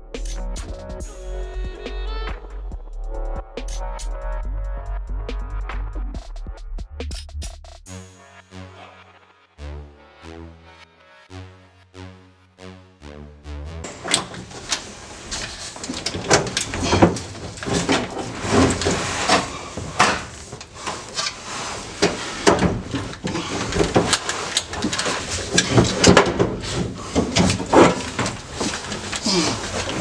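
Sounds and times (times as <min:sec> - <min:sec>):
metal and plastic knocks and rattles: 0:13.9 - 0:30.0.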